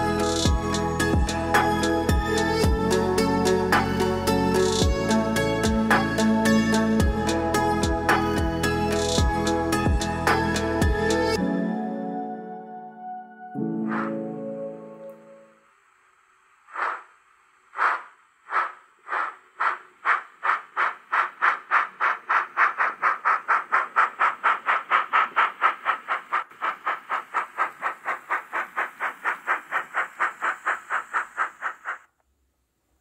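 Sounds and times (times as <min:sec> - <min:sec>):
model steam locomotive chuffing: 0:17.8 - 0:32.1.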